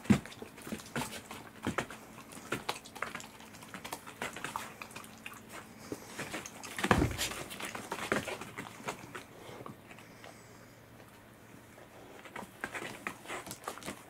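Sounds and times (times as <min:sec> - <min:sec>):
dogs chewing wet smacks: 0:00.0 - 0:10.4, 0:12.2 - 0:14.0
loud thump: 0:06.9 - 0:07.4.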